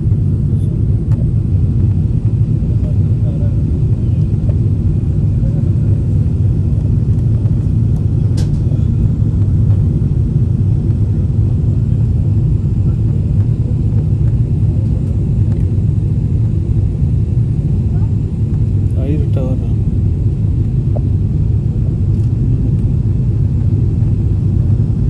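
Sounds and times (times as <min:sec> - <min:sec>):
jet engines rumbling in cabin: 0:00.0 - 0:25.0.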